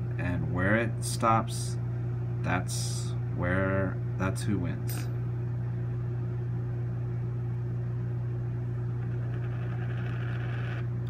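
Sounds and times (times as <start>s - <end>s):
low electrical hum: 0.0s - 11.0s
coin spinning on a mat: 9.0s - 10.9s.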